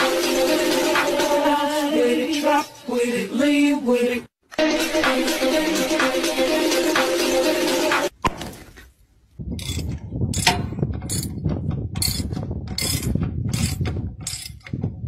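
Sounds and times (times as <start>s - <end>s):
music: 0.0s - 8.1s
wrench striking metal bolt: 9.6s - 11.4s.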